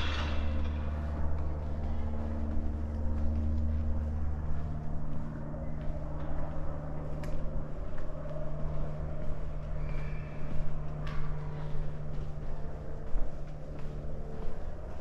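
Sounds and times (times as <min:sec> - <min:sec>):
vehicle engine running: 0:00.0 - 0:09.8.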